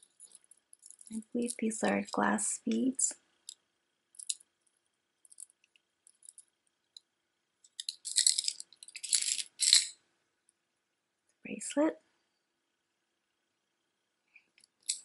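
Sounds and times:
glass bead necklace rattling: 0.0s - 2.2s, 3.5s - 4.5s, 5.2s - 7.0s, 7.6s - 10.0s, 14.8s - 15.0s.

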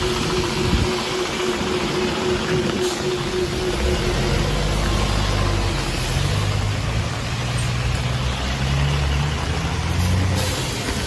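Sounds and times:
bus engine humming: 0.0s - 11.0s
heavy rain on a wet road: 0.0s - 11.0s.

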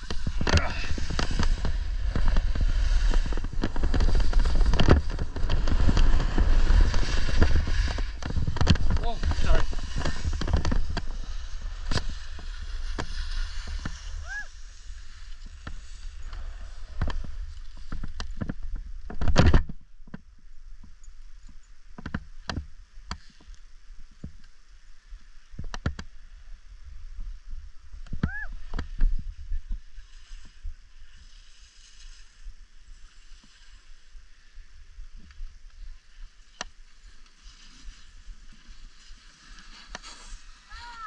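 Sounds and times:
wind buffeting microphone: 0.0s - 14.7s
edges scraping across snow: 0.0s - 18.1s, 29.9s - 34.6s, 36.0s - 41.0s.

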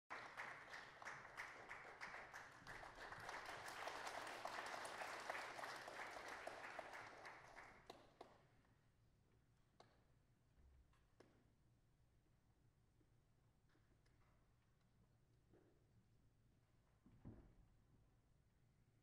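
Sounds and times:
audience applauding: 0.1s - 8.3s.

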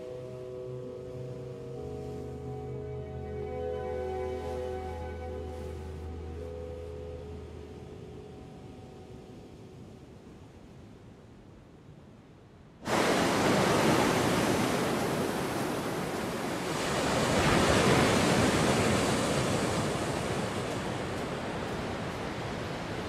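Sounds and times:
ocean surf breaking: 12.8s - 23.0s.

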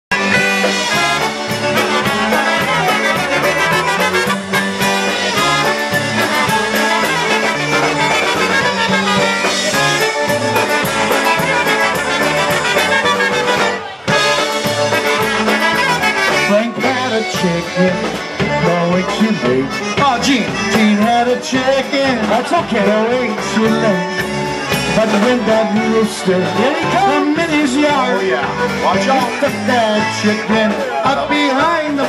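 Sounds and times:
trumpets: 0.1s - 22.0s
polka band playing: 0.1s - 32.0s.

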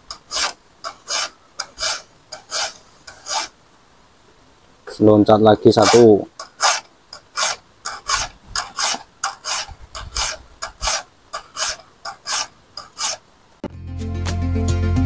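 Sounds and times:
file rasping on saw blade: 0.1s - 3.6s, 5.8s - 13.2s.

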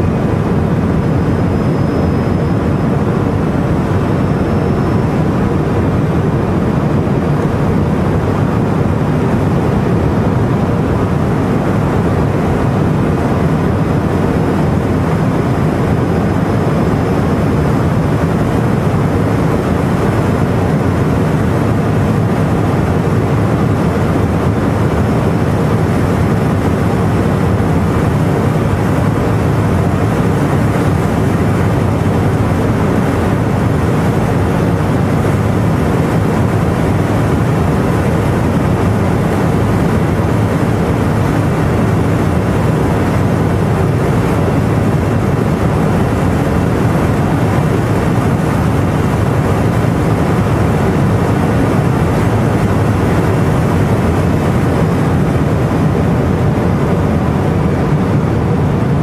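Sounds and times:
wind noise: 0.0s - 59.0s.

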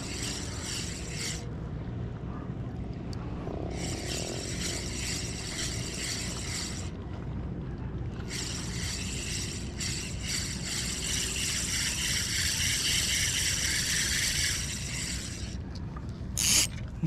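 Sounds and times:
fishing reel gears whirring: 0.0s - 1.5s, 3.7s - 7.0s, 8.2s - 15.7s, 16.3s - 17.0s
low steady rumble: 0.0s - 17.0s.

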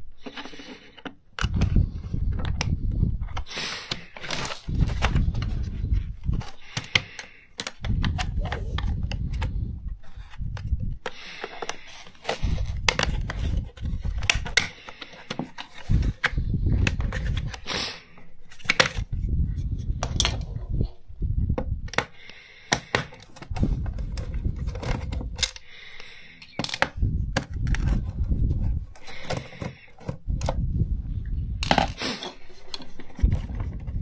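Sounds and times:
hard plastic clicking and clattering: 6.3s - 9.5s, 21.6s - 28.1s, 28.9s - 30.6s.

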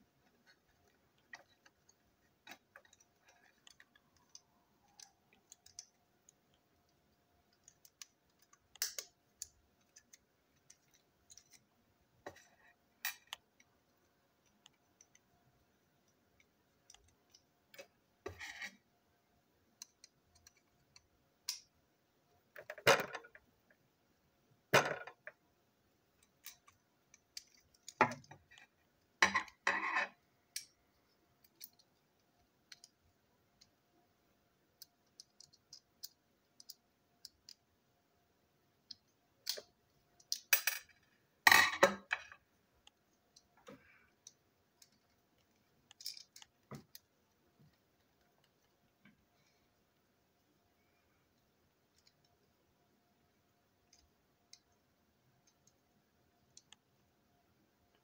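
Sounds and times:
plastic parts clicking and clacking: 0.2s - 15.2s, 19.7s - 21.7s, 26.1s - 33.0s, 34.7s - 37.7s, 38.8s - 47.1s.

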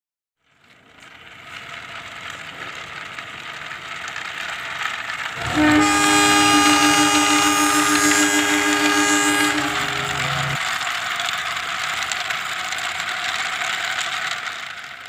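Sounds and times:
train rolling rumble: 1.5s - 10.9s
train horn: 5.4s - 10.6s.

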